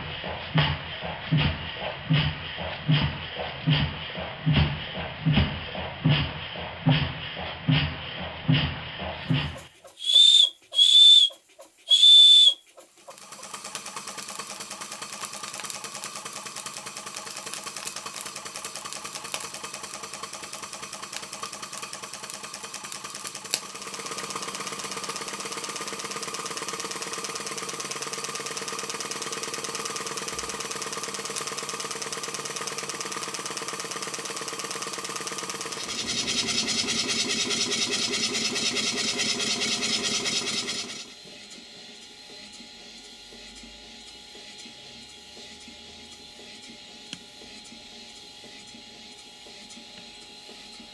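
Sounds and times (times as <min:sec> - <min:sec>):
model steam engine running: 0:00.0 - 0:50.9
steam whistle blasts: 0:10.0 - 0:12.6.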